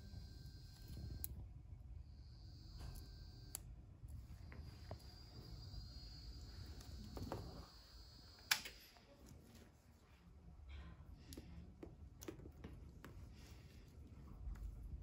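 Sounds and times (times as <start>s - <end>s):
faint high steady whine: 0.0s - 11.0s.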